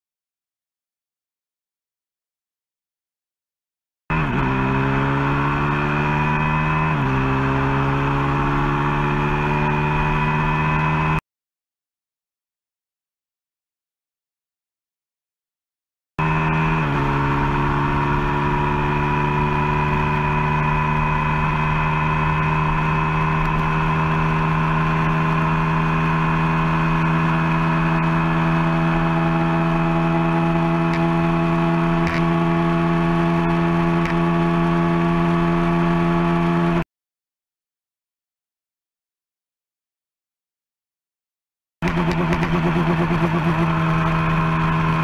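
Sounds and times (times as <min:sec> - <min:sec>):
motorcycle engine at full throttle: 0:04.1 - 0:11.2, 0:16.2 - 0:36.9, 0:41.8 - 0:45.0.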